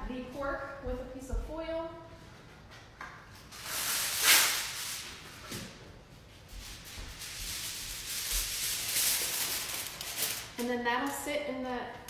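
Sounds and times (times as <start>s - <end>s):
aluminium foil tearing and rustling: 3.5s - 5.0s, 7.1s - 11.2s.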